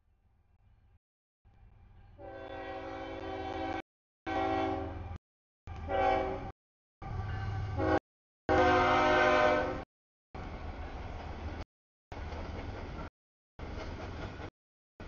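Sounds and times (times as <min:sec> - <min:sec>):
low train rumble: 0:01.5 - 0:09.8, 0:10.4 - 0:14.5
locomotive horn blasts: 0:02.2 - 0:05.1, 0:05.7 - 0:06.5, 0:07.3 - 0:09.8.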